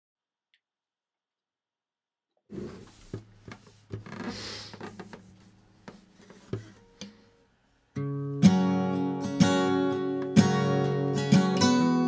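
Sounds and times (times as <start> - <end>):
acoustic guitar strumming: 8.0 - 12.0.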